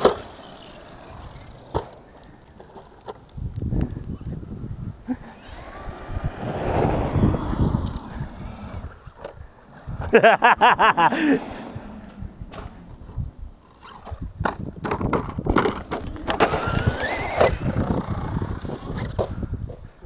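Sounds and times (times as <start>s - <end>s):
rc car wheels clattering on concrete: 0.0s - 4.1s, 11.4s - 19.4s
laughter-like voice: 5.0s - 5.5s, 10.0s - 11.7s
electric motor whine: 5.2s - 9.2s, 15.6s - 19.3s.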